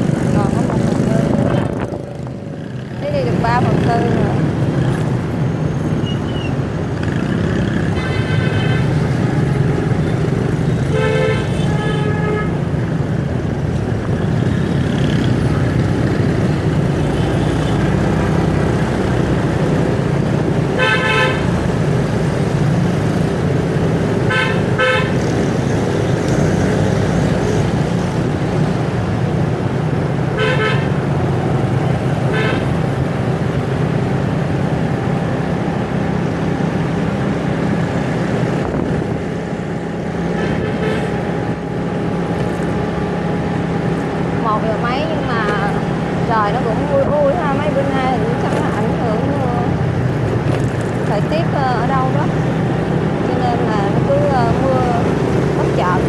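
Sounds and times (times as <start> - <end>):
traffic engine and road rumble: 0.0 - 56.0
vehicle horns honking: 8.0 - 9.0, 10.9 - 12.6, 20.8 - 21.6, 24.3 - 25.2, 30.4 - 31.0, 32.3 - 32.8.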